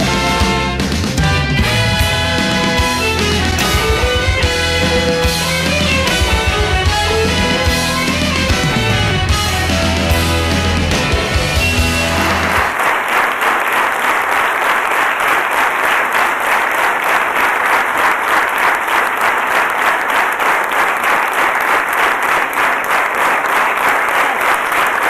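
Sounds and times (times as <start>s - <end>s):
rock music: 0.0s - 12.8s
audience applauding: 0.0s - 25.0s.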